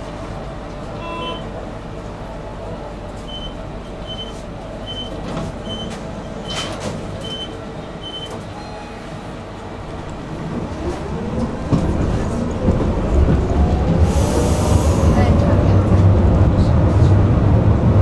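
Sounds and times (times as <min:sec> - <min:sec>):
tram running gear rumble: 0:00.0 - 0:18.0
door warning beeps: 0:03.3 - 0:09.0.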